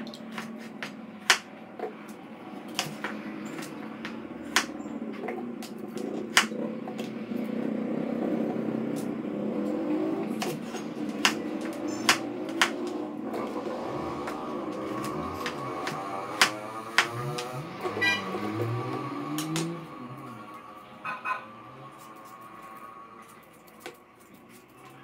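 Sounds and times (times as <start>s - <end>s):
knife slicing carrot: 0.0s - 1.4s, 10.4s - 13.0s
knife tapping plastic board: 0.1s - 1.5s, 2.8s - 4.7s, 10.4s - 12.9s, 14.3s - 17.5s.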